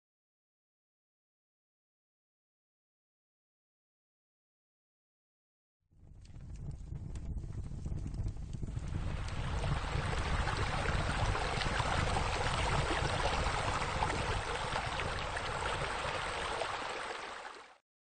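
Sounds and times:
running splashing water: 8.9s - 17.8s.

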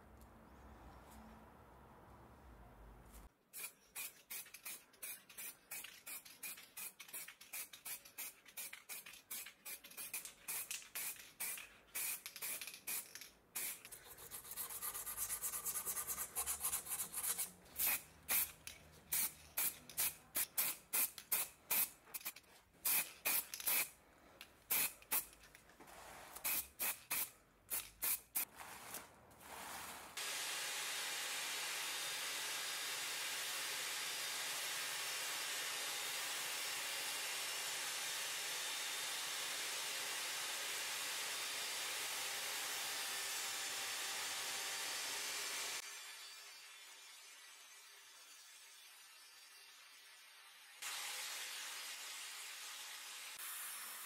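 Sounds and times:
hand sanding filler on metal: 13.9s - 18.6s.

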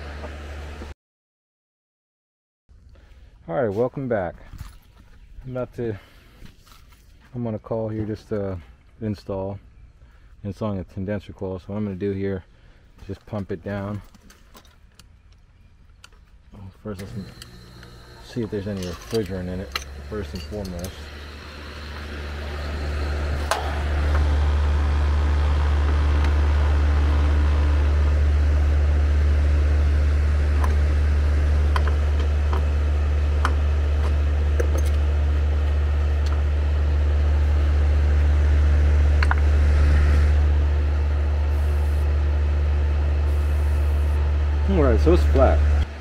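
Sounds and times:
low machinery hum: 15.0s - 46.0s
hand tools clicking and tapping: 18.4s - 21.0s.

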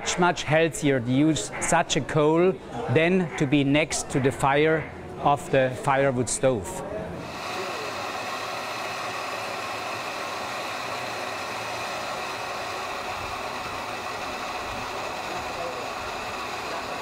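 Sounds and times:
stove burner hissing: 7.2s - 17.0s.

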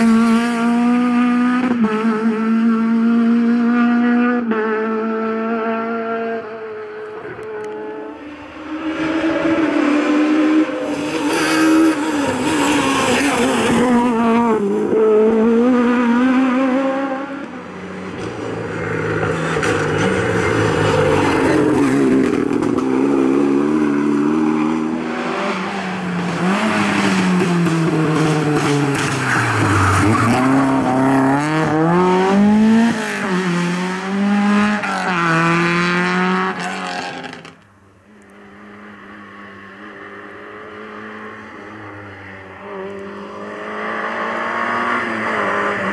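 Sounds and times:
rally car engines revving: 0.0s - 45.9s.

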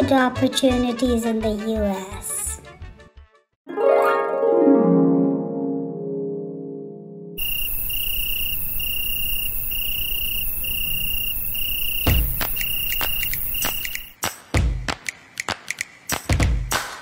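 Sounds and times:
harp music: 3.7s - 7.4s
crickets chirping: 7.4s - 14.2s
steady hiss: 7.4s - 14.2s
sharp clicks: 11.9s - 14.1s
low thump: 12.0s - 12.5s.

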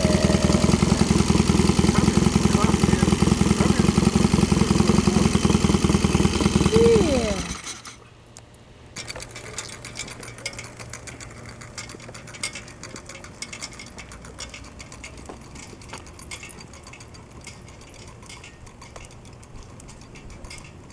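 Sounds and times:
motorcycle engine running: 0.0s - 7.9s.

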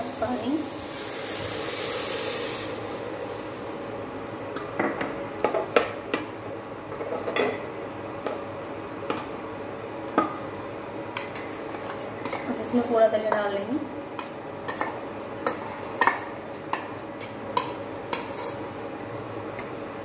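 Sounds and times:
water hissing in hot pot: 0.0s - 4.0s
spoon scraping metal pot: 17.6s - 18.6s.

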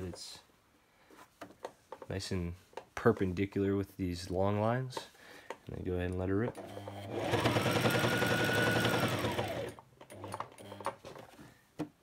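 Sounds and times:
sewing machine stitching: 6.5s - 11.3s.

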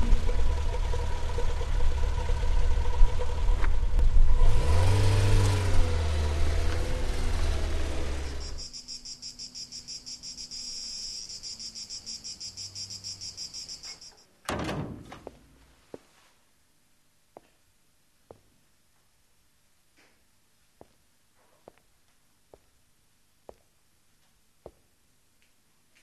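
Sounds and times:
car engine humming: 0.0s - 14.2s
crickets chirping: 8.2s - 14.2s.

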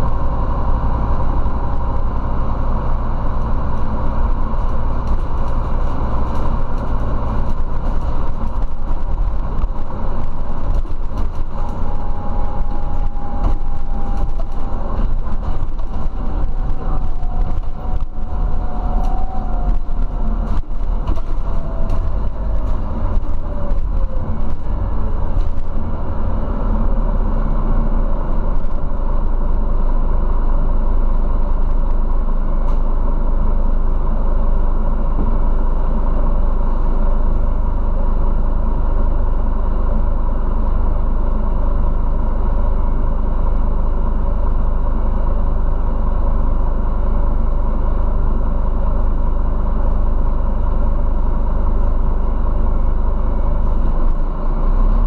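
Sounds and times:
bus engine and road rumble: 0.0s - 55.0s
body rattles and knocks: 3.8s - 25.9s.

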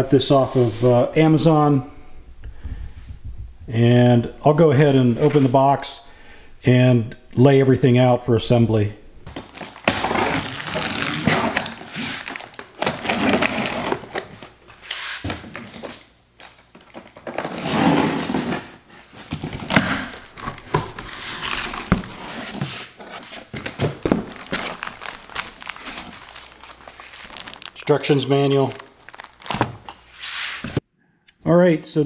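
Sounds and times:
contents rustling: 9.3s - 30.8s
cardboard flaps scraping: 9.4s - 16.0s, 17.1s - 30.8s.

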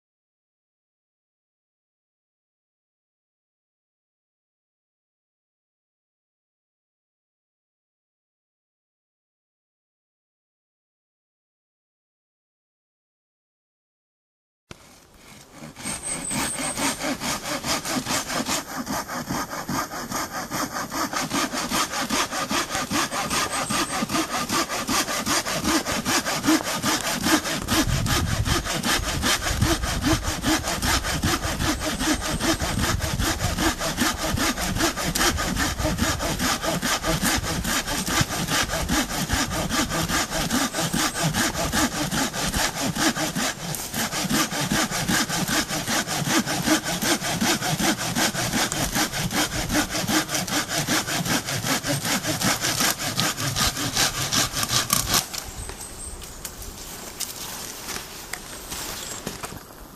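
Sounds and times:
pruning saw cutting wood: 14.7s - 59.7s.

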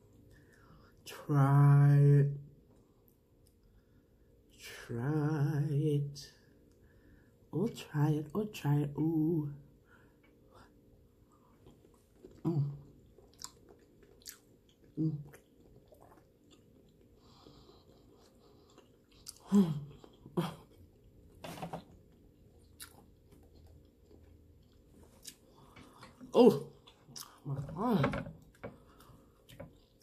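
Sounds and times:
person chewing food: 10.1s - 27.8s, 28.4s - 30.0s.

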